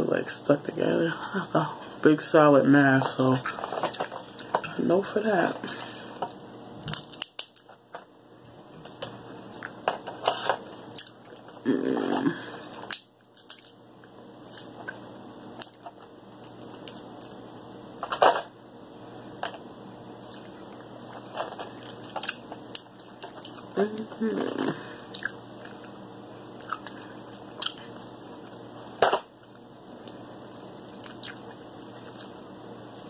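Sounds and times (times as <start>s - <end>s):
crab shells cracking: 6.8s - 7.8s, 12.8s - 13.8s
chewing: 25.1s - 25.9s, 26.6s - 28.6s, 31.0s - 32.4s.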